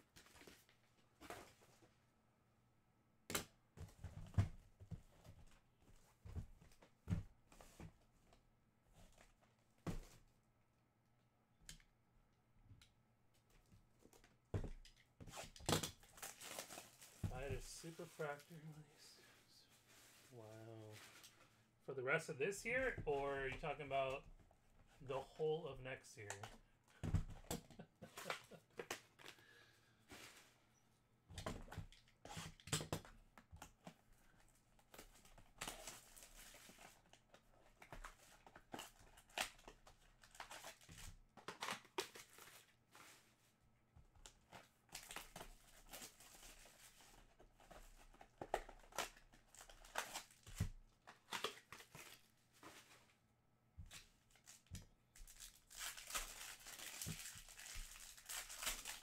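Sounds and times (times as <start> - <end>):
packaging rustling and tearing: 15.3 - 18.5, 34.9 - 43.2, 44.4 - 53.0, 53.9 - 59.0.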